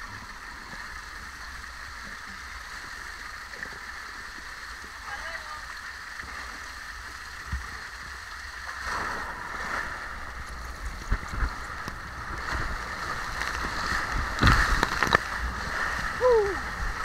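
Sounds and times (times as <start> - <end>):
water rushing down slide: 8.5 - 17.0
loud water splash: 8.6 - 10.4, 12.2 - 17.0.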